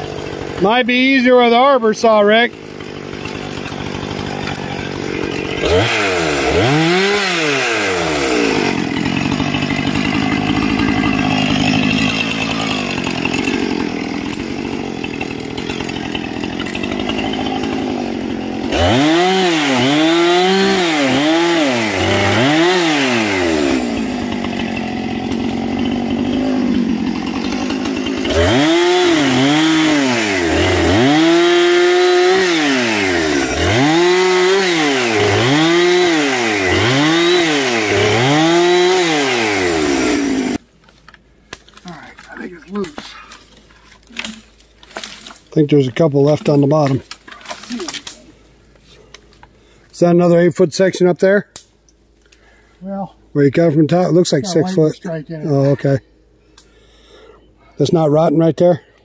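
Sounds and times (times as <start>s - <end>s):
chainsaw engine revving: 0.0s - 40.6s.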